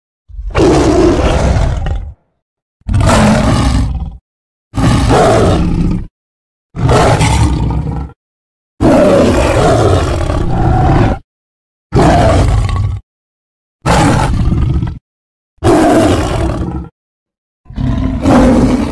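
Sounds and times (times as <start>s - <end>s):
big cat roars: 0.3s - 2.3s, 2.9s - 4.2s, 4.8s - 6.1s, 6.8s - 8.2s, 8.8s - 11.2s, 11.9s - 13.0s, 13.8s - 15.0s, 15.6s - 16.9s, 17.7s - 18.9s.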